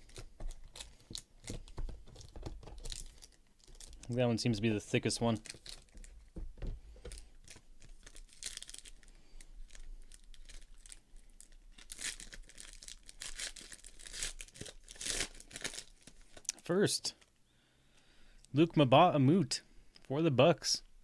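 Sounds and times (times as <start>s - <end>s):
foil wrapper tearing and crinkling: 0.0s - 4.1s, 5.4s - 6.1s, 7.1s - 16.4s.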